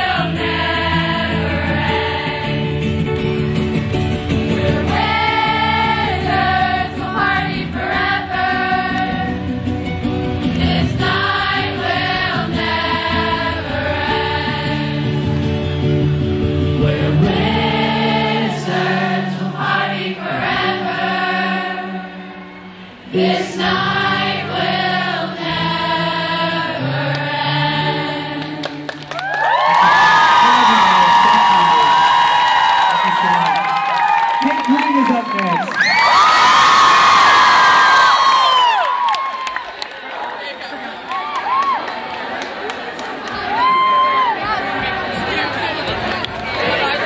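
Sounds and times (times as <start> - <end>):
acoustic guitar strumming: 0.0 - 19.4
crowd singing along: 0.0 - 29.0, 44.4 - 47.0.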